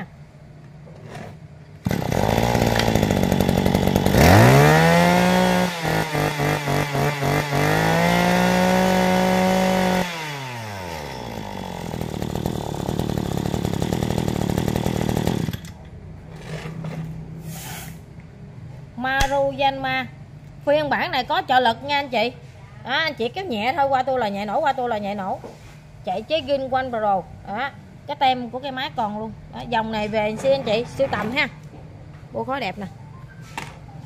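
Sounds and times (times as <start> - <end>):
brush cutter engine revving: 1.8 - 15.8.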